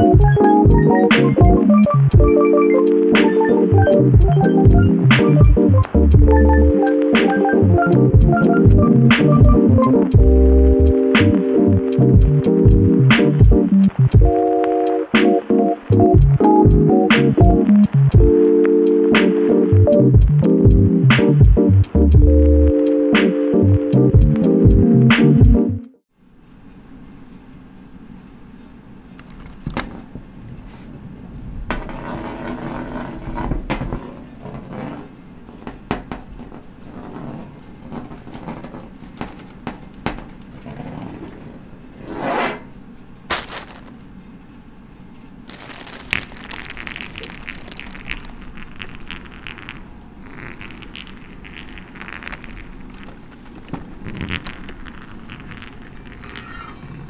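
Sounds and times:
crackling rattle: 0:43.3 - 0:44.6, 0:45.4 - 0:57.0.

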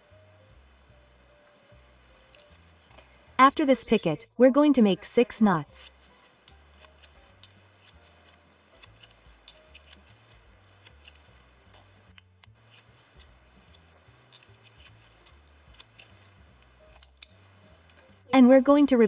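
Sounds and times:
small ticks and clicks of tatting: 0:02.2 - 0:03.1, 0:05.8 - 0:18.2.

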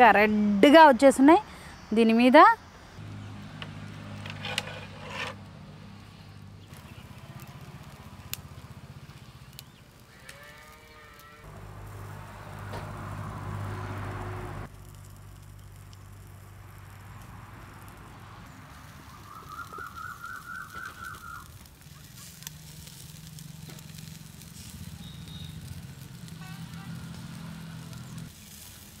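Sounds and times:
cow mooing: 0:10.1 - 0:14.6.

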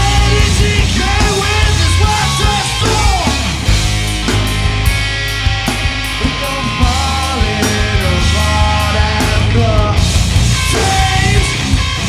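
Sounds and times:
man singing: 0:00.0 - 0:03.6, 0:06.2 - 0:11.9
drums: 0:00.0 - 0:12.0
electric bass: 0:00.0 - 0:12.0
electric guitar: 0:00.0 - 0:12.0.

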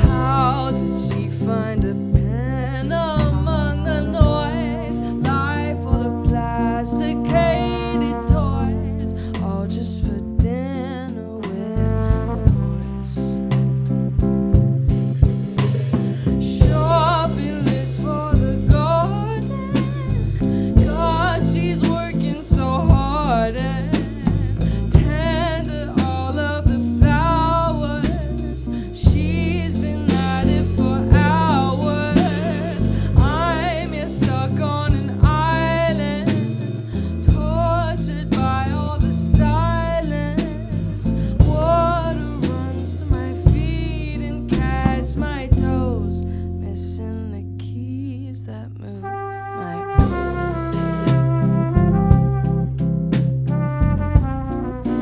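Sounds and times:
drum kit beat: 0:00.0 - 0:09.6, 0:11.4 - 0:46.0, 0:50.0 - 0:55.0
woman singing: 0:00.0 - 0:13.6, 0:15.2 - 0:52.1
bass guitar: 0:00.0 - 0:55.0.

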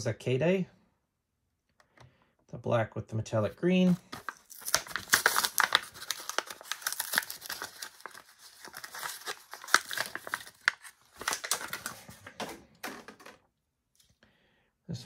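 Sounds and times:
plastic packaging crinkling: 0:03.9 - 0:13.2.

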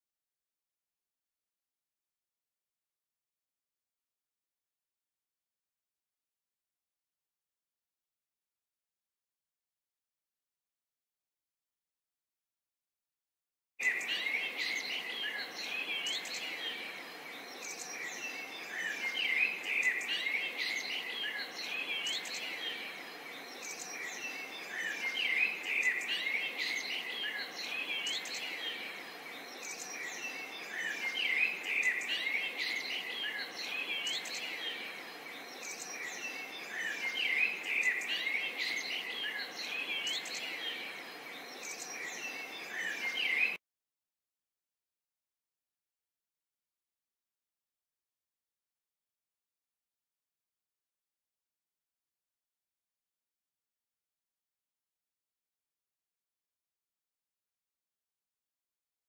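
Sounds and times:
songbirds chirping: 0:13.8 - 0:43.6.

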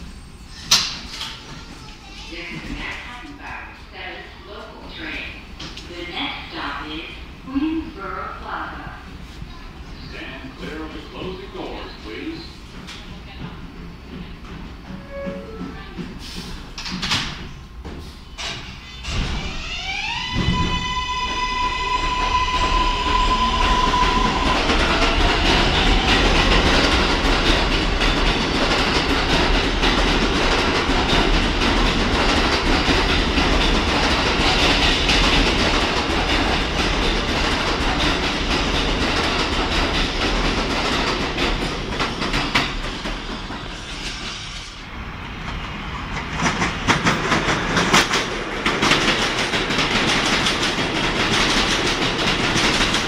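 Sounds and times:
train wheel and rail noise: 0:00.0 - 0:53.0
train wheels clattering over rail joints: 0:46.1 - 0:53.0.

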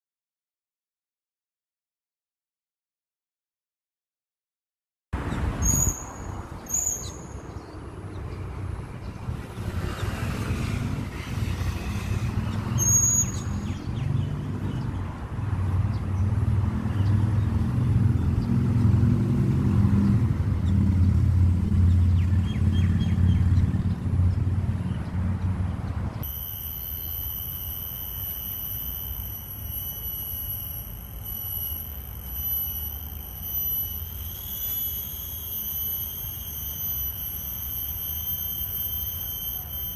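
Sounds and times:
road traffic rumble: 0:05.2 - 0:39.9
high-pitched multi-tone buzz: 0:09.3 - 0:14.5, 0:26.2 - 0:39.9
short high chirps: 0:12.8 - 0:13.8, 0:26.2 - 0:39.9.

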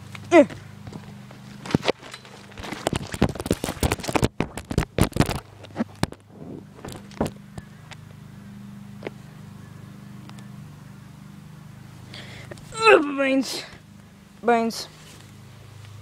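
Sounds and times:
steady low hum: 0:00.0 - 0:16.0
microphone rubbing against fabric: 0:02.8 - 0:07.0.

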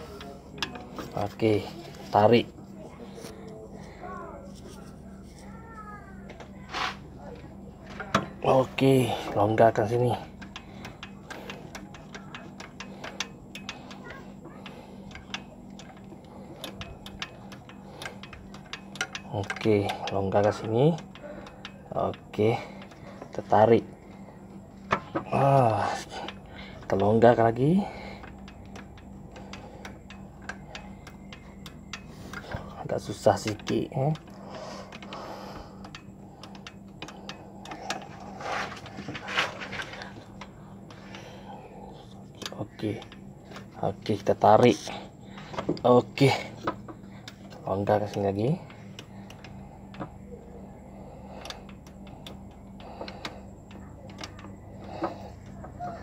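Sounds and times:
faint low hum: 0:00.0 - 0:56.0
ratchet wrench clicking: 0:08.1 - 0:23.9, 0:24.8 - 0:38.2.

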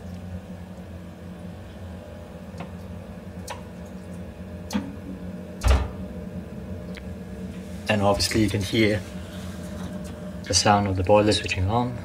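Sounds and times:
boiler humming: 0:00.0 - 0:12.0
low thump: 0:05.6 - 0:06.0.

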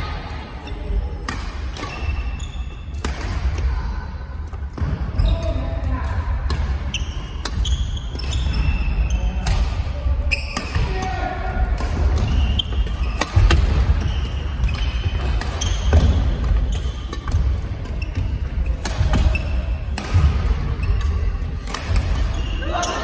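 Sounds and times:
shoe squeaks: 0:01.7 - 0:02.9, 0:06.8 - 0:09.4, 0:10.2 - 0:10.8, 0:12.2 - 0:17.2, 0:17.9 - 0:19.8, 0:22.2 - 0:23.0
rackets striking shuttlecock: 0:02.9 - 0:03.7, 0:06.1 - 0:08.7, 0:11.6 - 0:22.4.

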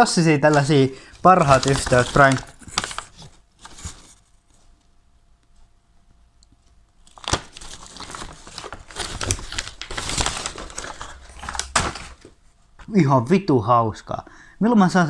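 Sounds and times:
paper bag crinkling: 0:00.4 - 0:04.2, 0:07.0 - 0:12.3.

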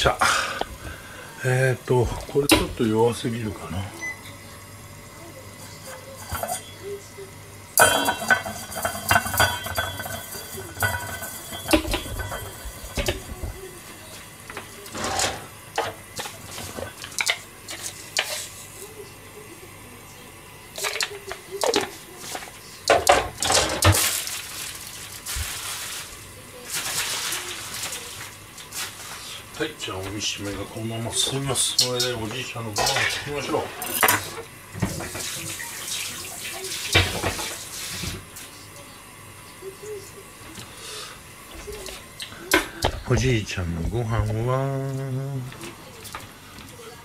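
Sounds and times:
pots and utensils clinking: 0:02.1 - 0:03.0, 0:05.5 - 0:07.0, 0:07.7 - 0:19.0, 0:20.7 - 0:38.4, 0:41.5 - 0:44.5.

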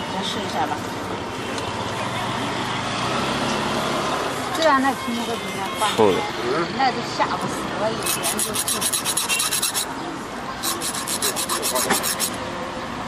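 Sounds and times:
knife rasping on sharpening bar: 0:08.0 - 0:09.9, 0:10.6 - 0:12.4.

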